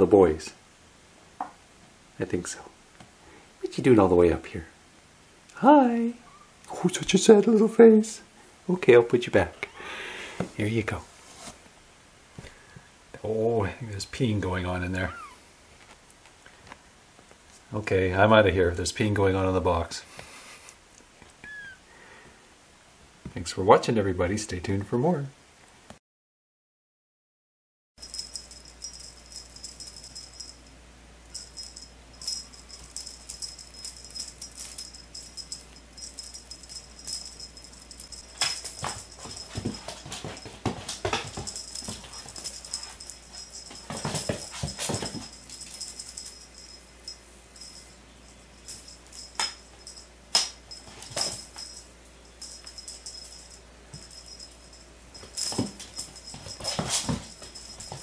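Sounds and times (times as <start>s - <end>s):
paws thumping on wooden floor: 37.9s - 46.4s, 55.2s - 58.0s
toy hitting floorboards: 38.1s - 45.6s.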